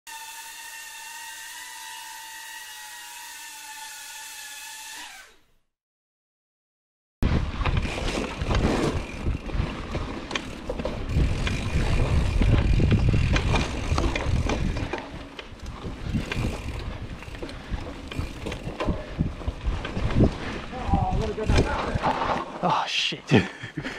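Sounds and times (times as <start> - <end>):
bike tyres rumbling on trail: 7.2 - 22.6
bike frame rattling: 7.3 - 22.6.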